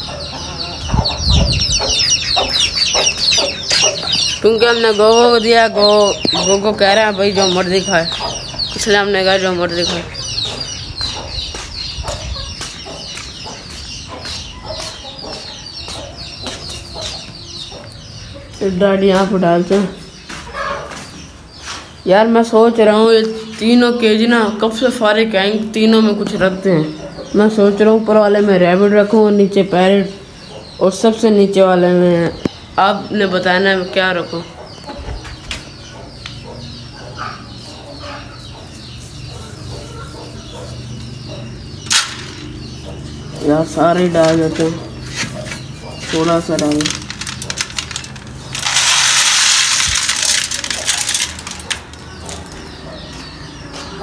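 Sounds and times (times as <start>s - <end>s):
chickens clucking: 0.0s - 54.0s
short chirping bird calls: 0.7s - 6.7s.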